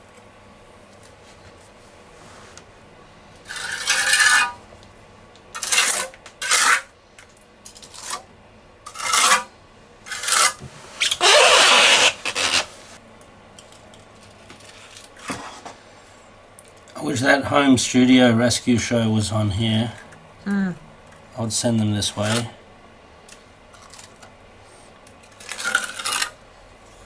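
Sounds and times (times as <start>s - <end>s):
trowel scraping wet compound: 3.5s - 4.6s, 5.6s - 6.9s, 8.9s - 9.5s, 10.1s - 12.6s.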